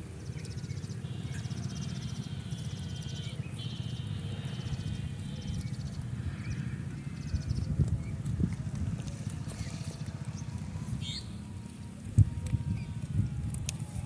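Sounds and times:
low rumble: 4.8 - 14.0.

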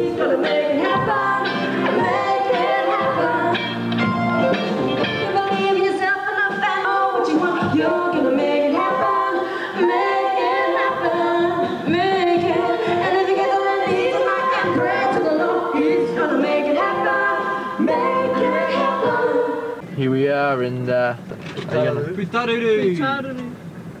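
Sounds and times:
voices singing in harmony: 0.0 - 19.9.

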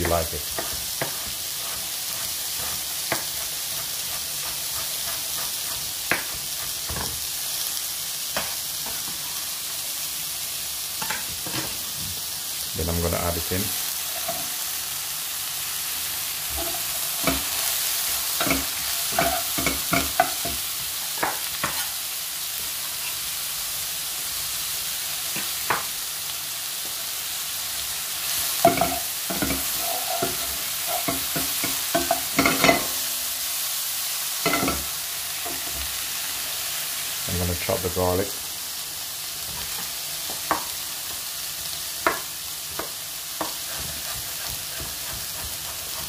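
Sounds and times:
utensils knocking and scraping pan: 0.0 - 7.2, 16.5 - 17.6, 18.3 - 20.6, 28.6 - 33.1, 34.4 - 35.9, 42.8 - 46.0
mushrooms sizzling in a pan: 0.0 - 46.0.

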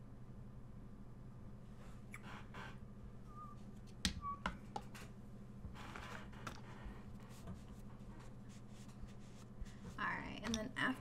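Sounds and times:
steady low hum: 0.0 - 11.0
soft scratching: 4.9 - 10.4.

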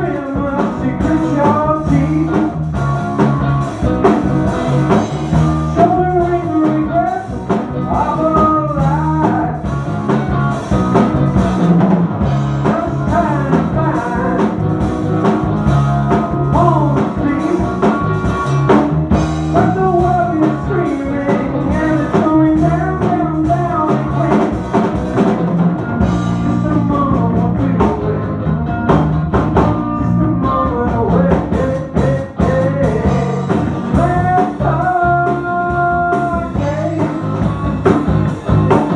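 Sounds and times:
person singing: 0.0 - 2.6, 4.8 - 9.7, 12.6 - 14.8, 15.8 - 18.8, 19.5 - 24.8, 26.4 - 38.0
drum kit: 0.0 - 38.9
electric bass: 0.0 - 38.9
electric guitar: 0.0 - 38.9.

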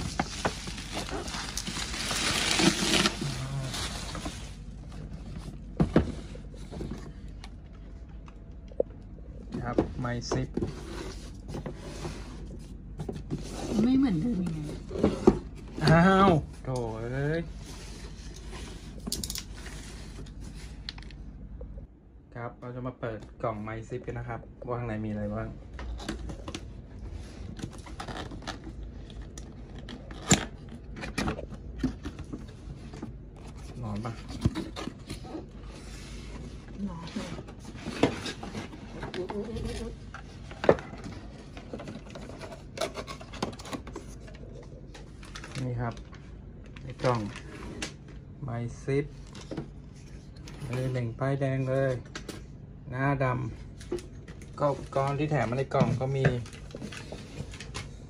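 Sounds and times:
bubble wrap rustling: 0.0 - 5.3.

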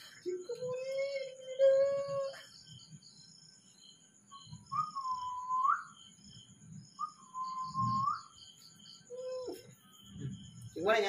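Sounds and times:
man whistling: 4.7 - 6.0, 7.0 - 8.4.

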